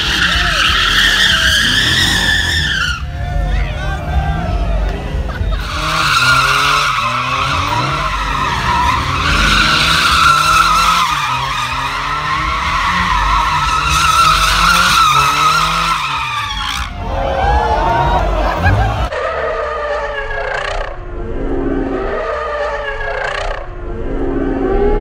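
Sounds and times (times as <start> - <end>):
tyres squealing: 0.0 - 19.1
car engine revving: 0.0 - 19.2.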